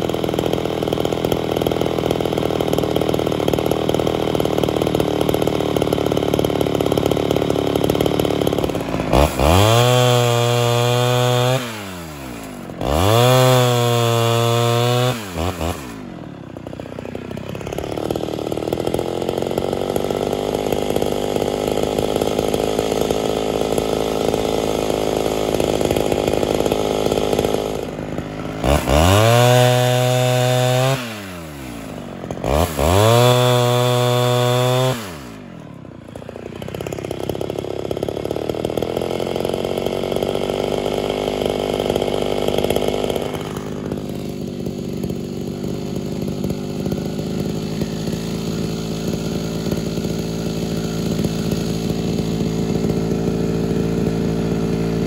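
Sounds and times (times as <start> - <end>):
chainsaw cutting logs: 0.0 - 55.0
chainsaw revving: 0.0 - 55.0.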